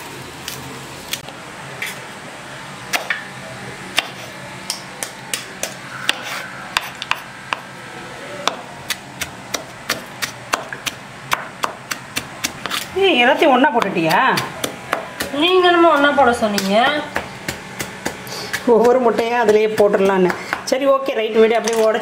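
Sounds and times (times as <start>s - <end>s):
knife chopping on wooden board: 4.0s - 7.6s, 8.5s - 12.9s, 13.7s - 20.8s.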